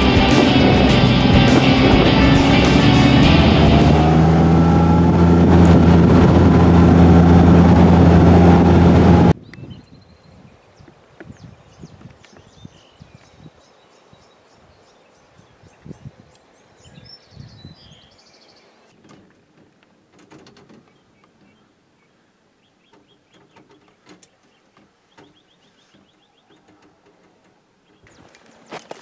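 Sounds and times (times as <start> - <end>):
small birds chirping: 9.4 - 18.9, 20.8 - 29.0
rustles: 18.6 - 29.0.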